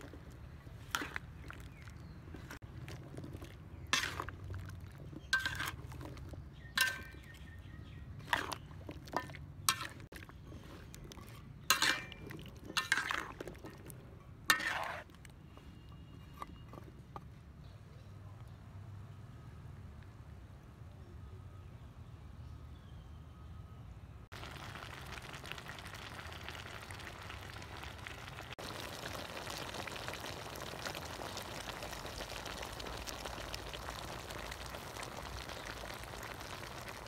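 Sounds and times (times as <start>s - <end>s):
metal spatula scraping wok: 3.3s - 7.4s, 8.2s - 13.4s, 14.2s - 15.2s.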